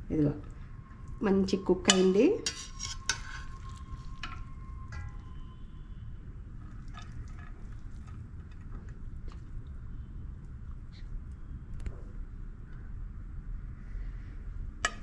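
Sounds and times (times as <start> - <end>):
low background hum: 0.0 - 15.0
metal spoon clinking on pot: 1.8 - 5.4
spoon scraping rice: 1.9 - 4.3.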